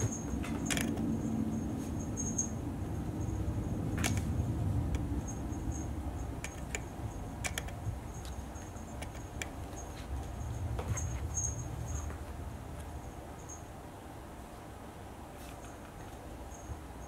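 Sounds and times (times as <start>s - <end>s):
low room rumble: 0.0s - 17.0s
kitten clawing at fabric mat: 6.3s - 12.0s.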